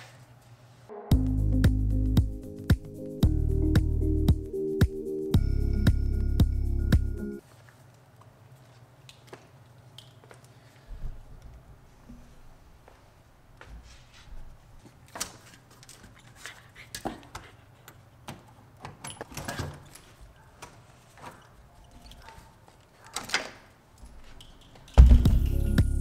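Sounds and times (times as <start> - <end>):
loud music: 1.0 - 7.3, 25.0 - 26.0
dog claws on tile floor: 14.8 - 25.0
door opening: 18.8 - 25.5.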